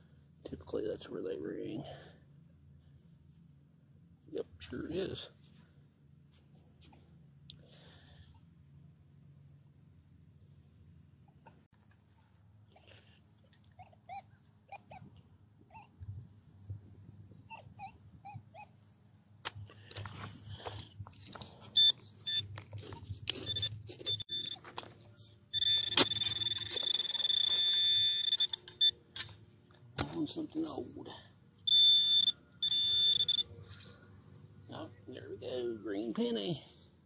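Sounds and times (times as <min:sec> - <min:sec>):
metal detector high beep: 0:21.7 - 0:22.5, 0:23.3 - 0:24.7, 0:25.5 - 0:29.0, 0:31.7 - 0:33.5.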